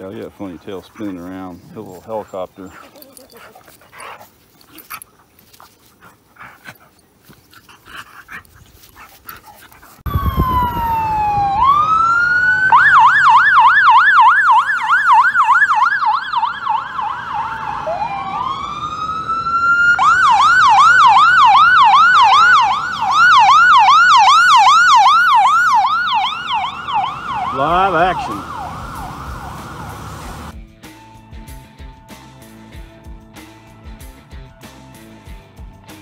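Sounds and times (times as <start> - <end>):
ambulance siren wailing and yelping: 10.0 - 30.6.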